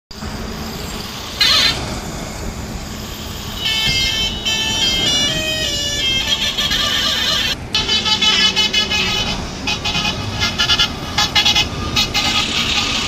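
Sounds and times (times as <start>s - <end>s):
highway traffic passing: 0.1s - 13.0s
musical truck horn: 1.4s - 2.0s, 3.2s - 13.0s
warbling horn blast: 1.4s - 2.1s, 3.1s - 13.0s.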